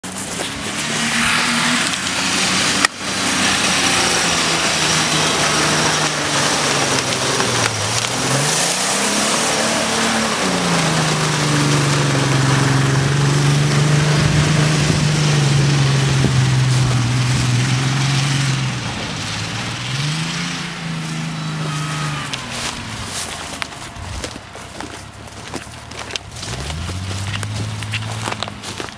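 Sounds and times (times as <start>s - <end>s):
car engine running hard: 0.0s - 28.9s
tyres spinning in mud: 0.0s - 28.9s.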